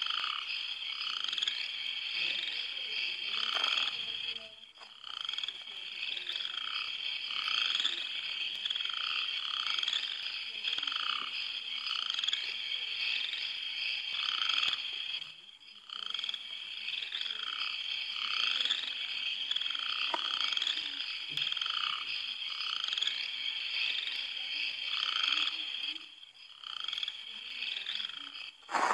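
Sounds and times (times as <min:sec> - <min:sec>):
high-pitched chirring: 0:00.0 - 0:21.3
frogs calling: 0:00.0 - 0:28.9.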